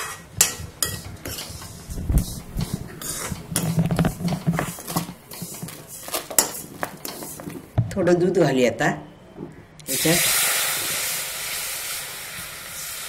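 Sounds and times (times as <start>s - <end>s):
spoon scraping metal pan: 0.0s - 7.7s.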